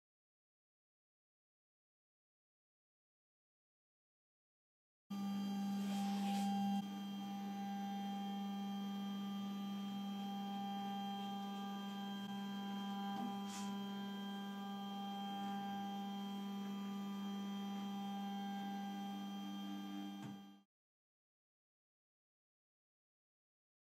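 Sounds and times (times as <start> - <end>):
stepper motor whine: 5.1 - 20.6.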